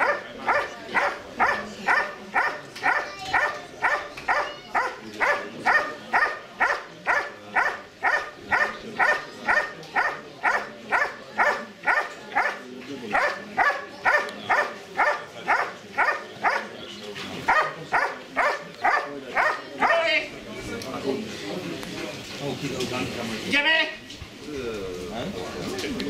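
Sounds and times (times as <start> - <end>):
dog barking sharply: 0.0 - 12.6.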